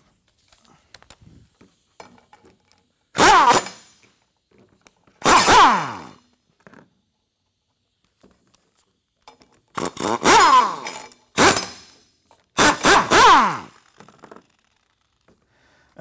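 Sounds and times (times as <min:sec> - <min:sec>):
power tool spinning bolts: 0:02.0 - 0:04.4, 0:05.1 - 0:06.8, 0:09.3 - 0:15.4.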